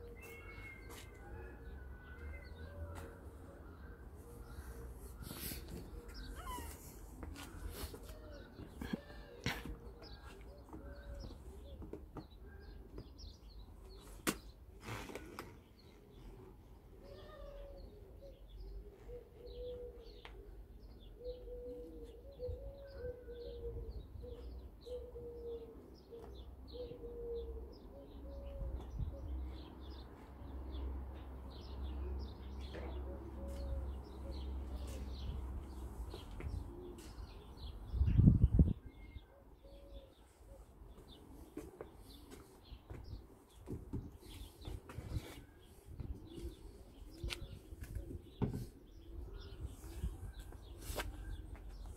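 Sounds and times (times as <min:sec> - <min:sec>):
doves cooing: 0:00.0 - 0:13.1, 0:16.0 - 0:30.0, 0:31.6 - 0:37.8, 0:44.2 - 0:51.9
small birds chirping: 0:02.1 - 0:30.4.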